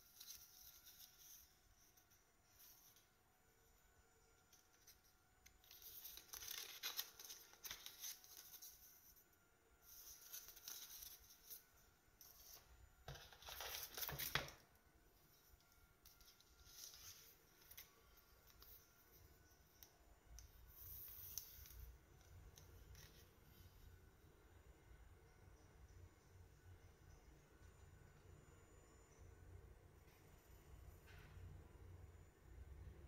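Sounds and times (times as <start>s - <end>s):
packaging rustling and crinkling: 5.6s - 9.0s, 12.4s - 14.6s.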